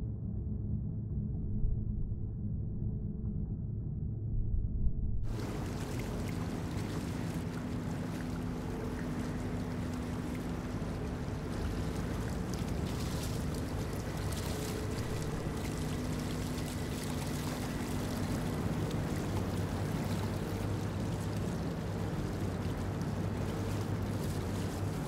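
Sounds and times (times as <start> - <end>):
boat machinery drone: 5.3 - 25.0.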